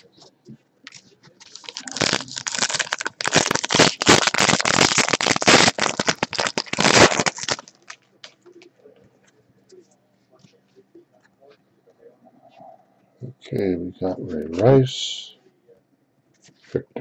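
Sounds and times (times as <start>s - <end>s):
foil wrapper tearing and crinkling: 1.4s - 8.0s.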